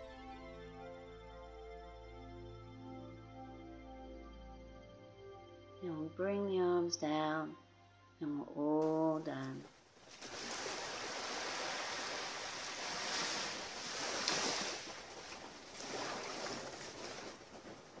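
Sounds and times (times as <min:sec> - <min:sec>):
small waves lapping on shore: 0:09.3 - 0:18.0.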